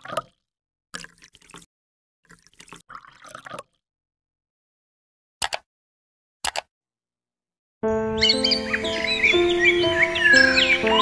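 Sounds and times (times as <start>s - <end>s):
watery splashing and dripping: 0.0s - 3.8s
short clicks: 5.4s - 5.7s, 6.4s - 6.7s.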